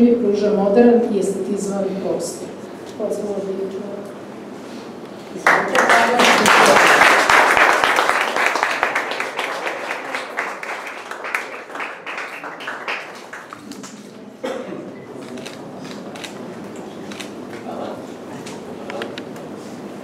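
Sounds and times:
audience applauding: 5.4 - 14.2.

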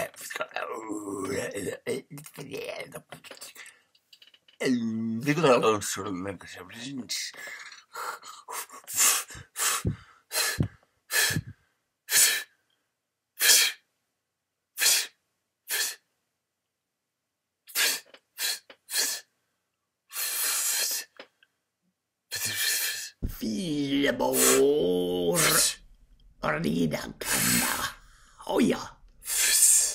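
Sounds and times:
man huffing and hissing: 7.4 - 12.6, 13.4 - 13.9, 14.8 - 16.1, 17.7 - 19.3, 20.1 - 21.2, 22.3 - 25.8, 27.2 - 28.4, 29.2 - 29.9.

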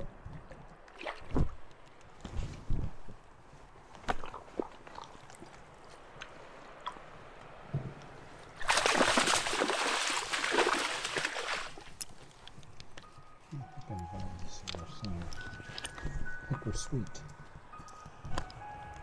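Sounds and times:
water splashing and sloshing: 0.0 - 12.8.

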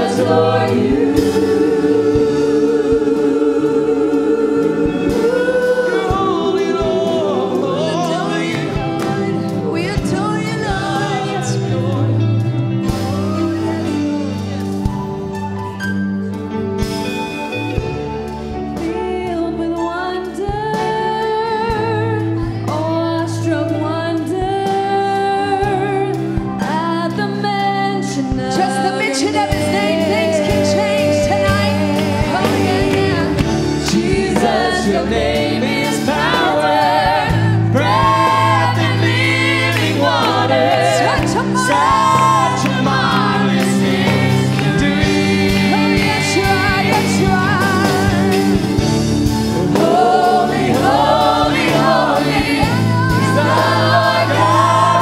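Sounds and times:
choir singing worship song: 0.0 - 15.1, 16.8 - 55.0
held bass notes: 29.1 - 55.0.

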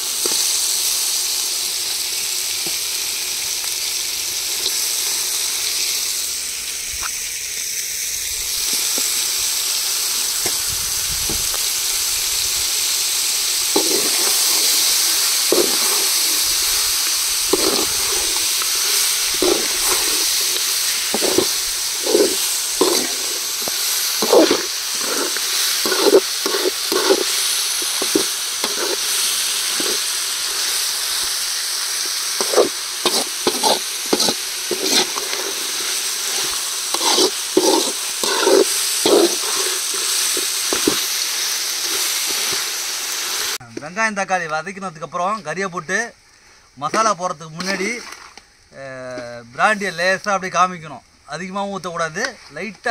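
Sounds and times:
shallots sizzling in oil: 0.0 - 45.6, 46.9 - 50.6
ladle scraping pan: 13.7 - 31.2, 32.2 - 41.2.

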